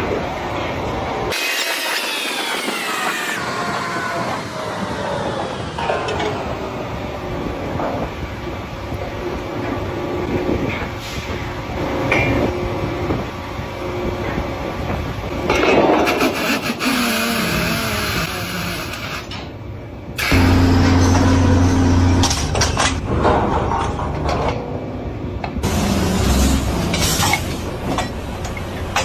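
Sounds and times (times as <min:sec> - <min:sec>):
drilling machinery running: 0:20.2 - 0:23.6.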